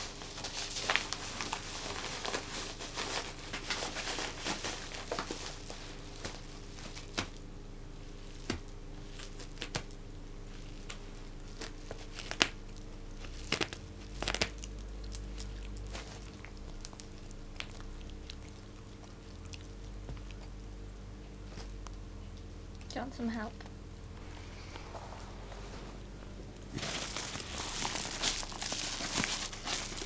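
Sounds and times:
paper mailer crinkling: 0.0s - 7.2s, 26.7s - 30.0s.

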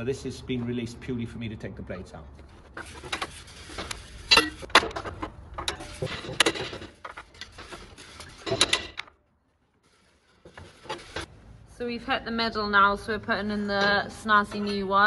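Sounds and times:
metal blades clinking and clanking: 4.3s - 4.8s.

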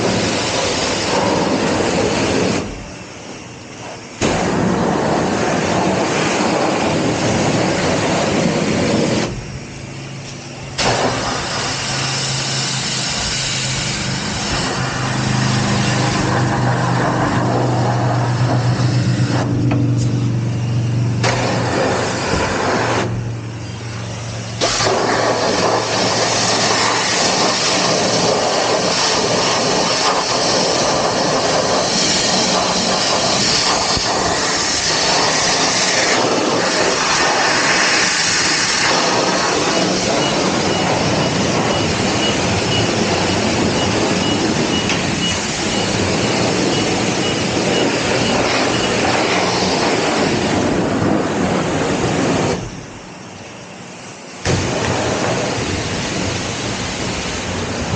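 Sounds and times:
pressure washer spraying water: 0.0s - 57.9s
low steady hum: 2.0s - 24.7s.

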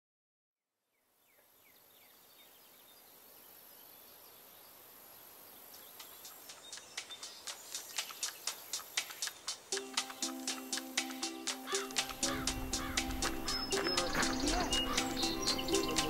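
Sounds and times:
bird chirps: 1.3s - 16.0s
steady high hiss: 3.0s - 16.0s
rhythmic ticking: 5.9s - 16.0s.

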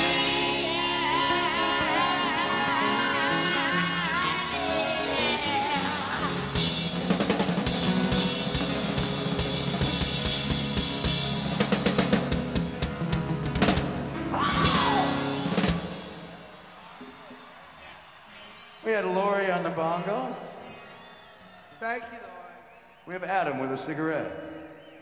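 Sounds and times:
piano: 0.0s - 17.5s
drum kit pounding: 5.1s - 17.6s.

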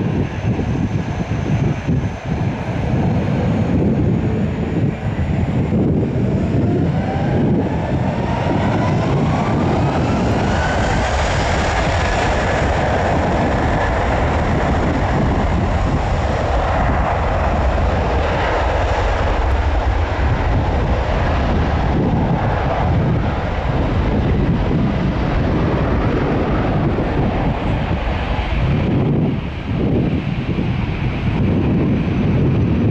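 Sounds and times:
thin engine whine: 0.0s - 30.9s
airliner engines running: 0.0s - 32.9s.

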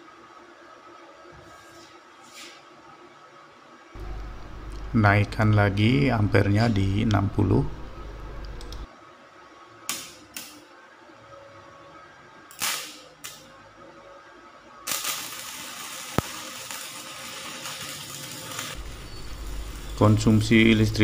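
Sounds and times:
welding electrode sparking: 9.9s - 10.7s, 12.5s - 13.5s, 14.8s - 20.8s
welding arc hissing crackle: 12.5s - 13.5s, 14.8s - 21.0s.

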